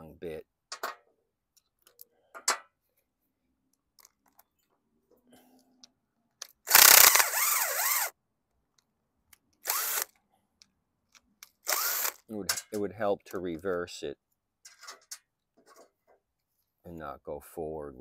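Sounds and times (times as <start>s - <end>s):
cordless drill whirring: 6.7s - 8.1s, 9.6s - 10.1s, 11.6s - 12.2s.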